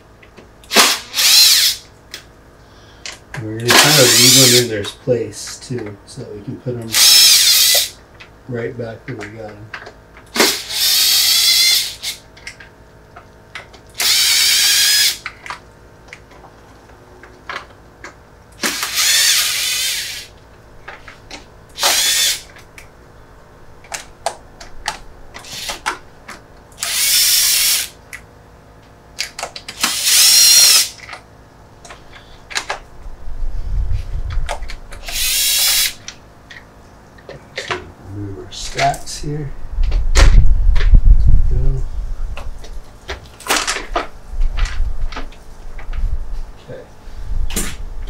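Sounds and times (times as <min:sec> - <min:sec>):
power drill whining: 0:00.7 - 0:01.8, 0:03.7 - 0:04.7, 0:06.9 - 0:08.0, 0:10.4 - 0:12.2, 0:14.0 - 0:15.2, 0:18.6 - 0:20.3, 0:21.8 - 0:22.5, 0:25.4 - 0:25.9, 0:26.8 - 0:28.0, 0:29.8 - 0:31.0, 0:35.0 - 0:36.0.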